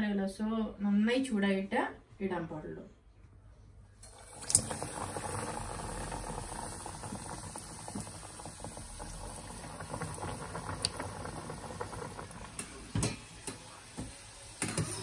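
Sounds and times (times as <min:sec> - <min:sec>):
hot oil sizzling: 0:04.0 - 0:15.0.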